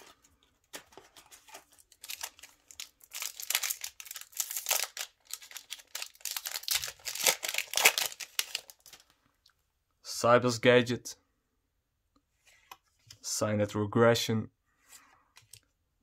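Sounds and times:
foil wrapper being torn open: 0:02.0 - 0:09.1.

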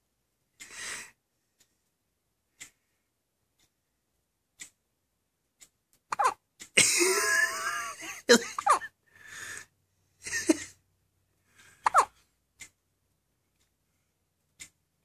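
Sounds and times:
baby hiccuping: 0:06.1 - 0:06.4, 0:08.6 - 0:08.9, 0:11.8 - 0:12.2.

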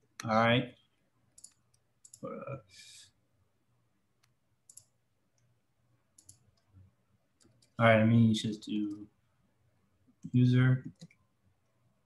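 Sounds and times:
typing on computer keyboard: 0:01.4 - 0:02.3
quiet voice: 0:02.2 - 0:02.7.

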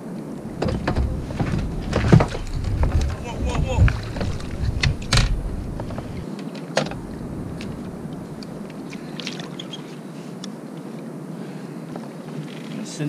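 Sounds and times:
water and wind rumbling: 0:00.0 - 0:12.4.

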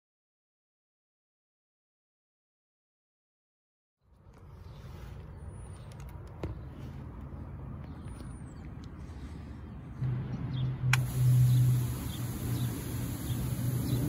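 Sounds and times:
bird chirps: 0:10.4 - 0:14.0
steady high hiss: 0:10.9 - 0:14.0.

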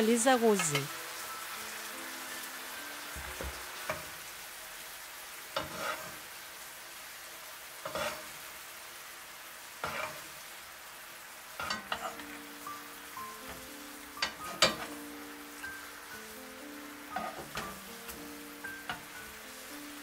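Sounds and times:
chicken sizzling in frying pan: 0:00.0 - 0:20.0
spoon scraping and tapping pan: 0:11.6 - 0:12.2, 0:14.2 - 0:15.0, 0:17.1 - 0:17.8.

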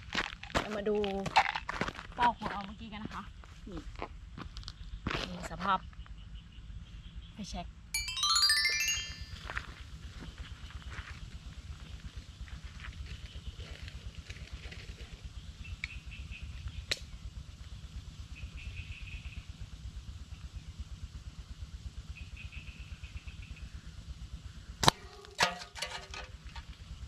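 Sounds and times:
metal can clattering: 0:25.4 - 0:26.4.

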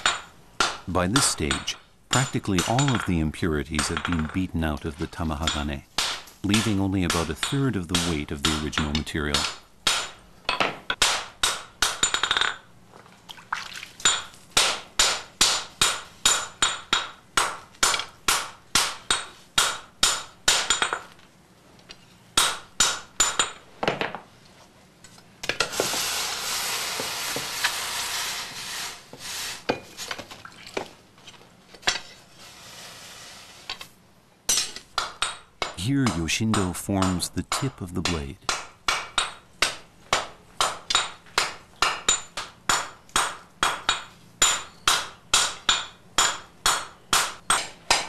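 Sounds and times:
hammer striking steel on an anvil: 0:00.0 - 0:03.1, 0:05.4 - 0:12.6, 0:34.5 - 0:48.0
steady hiss: 0:25.6 - 0:30.2, 0:32.2 - 0:34.2.

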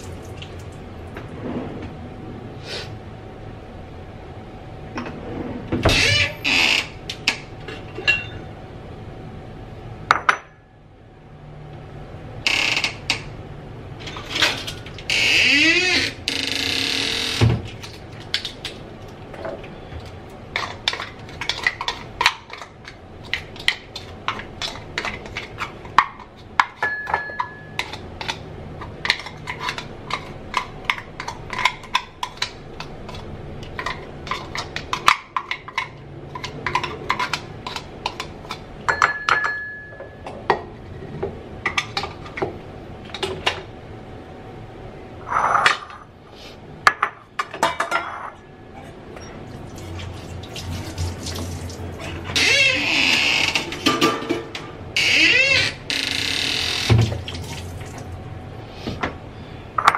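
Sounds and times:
dishes clinking on metal counter: 0:07.6 - 0:08.5, 0:10.1 - 0:10.6, 0:26.6 - 0:28.0, 0:38.9 - 0:40.7, 0:46.9 - 0:49.4, 0:53.7 - 0:54.6.

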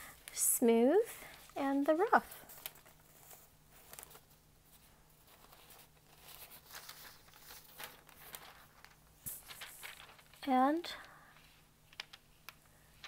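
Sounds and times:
rice paper rustling and crinkling: 0:01.2 - 0:04.4, 0:05.2 - 0:11.1.

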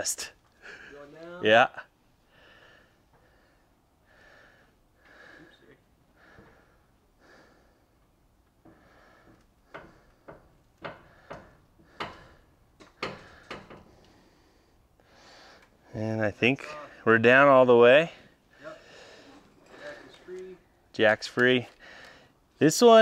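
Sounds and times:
clicks and creaks: 0:19.2 - 0:20.7.

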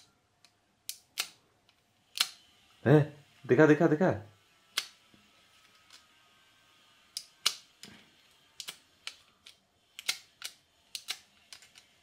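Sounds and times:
blade scraping metal clicks: 0:02.0 - 0:02.5, 0:08.6 - 0:11.9.

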